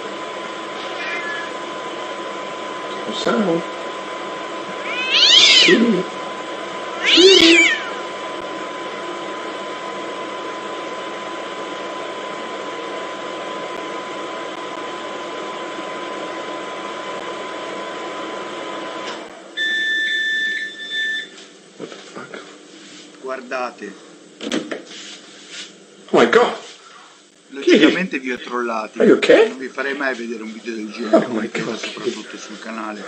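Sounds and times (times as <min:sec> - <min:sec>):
microwave oven humming: 0:00.0 - 0:33.0
cat meowing loudly: 0:00.8 - 0:01.6, 0:04.8 - 0:06.1, 0:07.0 - 0:08.0.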